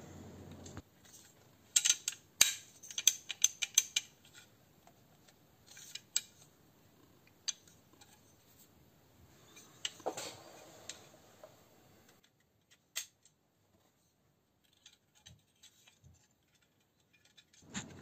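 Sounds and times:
metallic clicks of rifle parts: 0:01.7 - 0:04.5.

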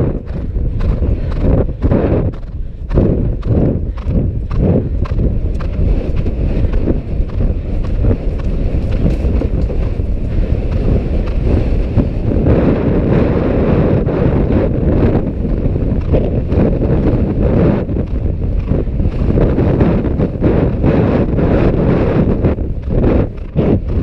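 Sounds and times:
horse hoofbeats on grass: 0:00.0 - 0:13.0, 0:14.8 - 0:24.0
wind buffeting microphone: 0:00.0 - 0:24.0.

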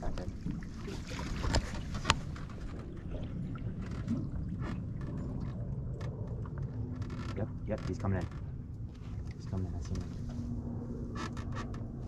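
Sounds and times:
water lapping against boat: 0:00.0 - 0:12.0
wind rumble: 0:00.0 - 0:12.0.

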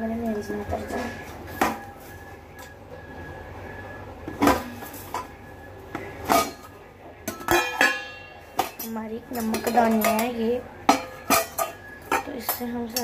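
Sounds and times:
kitchen utensils clinking: 0:06.2 - 0:13.0.

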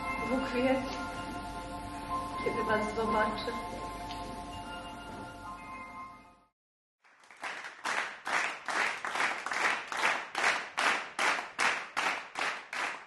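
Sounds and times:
audience clapping in unison: 0:07.0 - 0:13.0.

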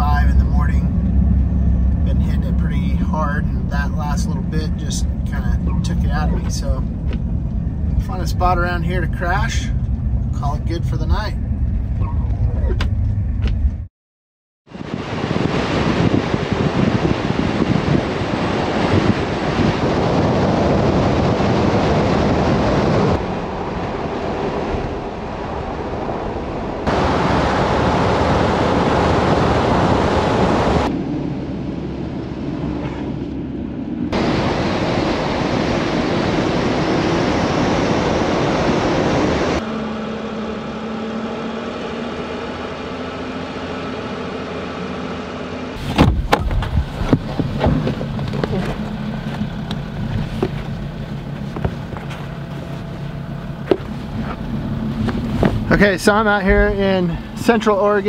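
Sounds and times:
low engine hum: 0:00.0 - 0:13.9, 0:14.7 - 0:58.0
wind buffeting microphone: 0:14.7 - 0:39.6, 0:45.8 - 0:58.0
tyre and road noise on snow: 0:14.7 - 0:58.0.

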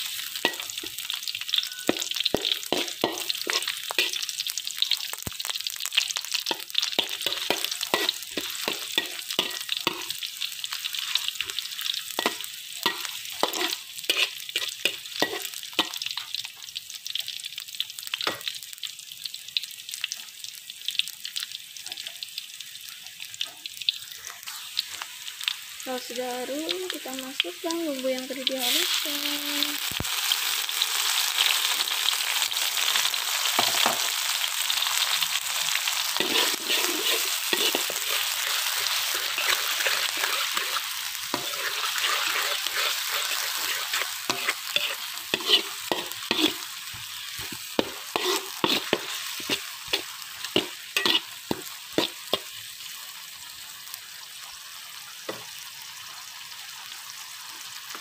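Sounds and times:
spatula scraping a wok: 0:00.0 - 0:04.5, 0:06.5 - 0:10.2, 0:12.2 - 0:16.0, 0:28.5 - 0:29.2, 0:35.5 - 0:52.6
paste sizzling in hot oil: 0:00.0 - 0:58.0.

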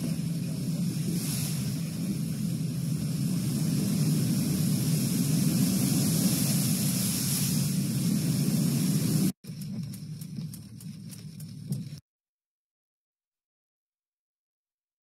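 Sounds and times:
rain: 0:00.0 - 0:09.3
vehicle rumbling through water: 0:00.0 - 0:09.3
water spray hissing: 0:00.0 - 0:09.4.

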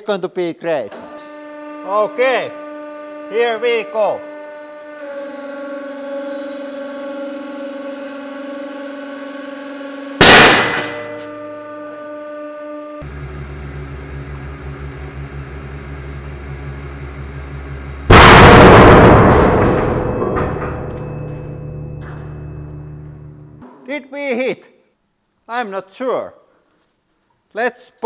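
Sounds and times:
hydraulic press pump humming: 0:00.9 - 0:11.5
drill bit shattering with loud bang: 0:10.2 - 0:11.3.

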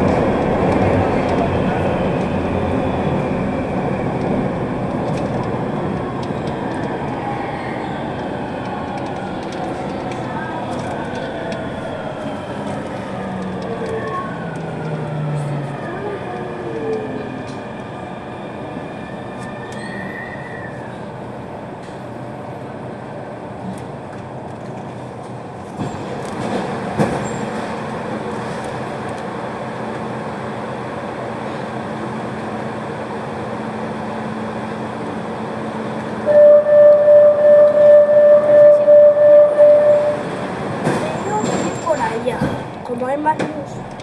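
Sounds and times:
train running noise: 0:00.0 - 0:44.0.

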